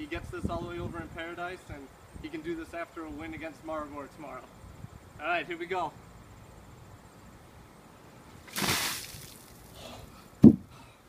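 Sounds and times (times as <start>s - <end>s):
water splashing: 8.4s - 9.7s
ice water sloshing in plastic tub: 8.5s - 9.6s.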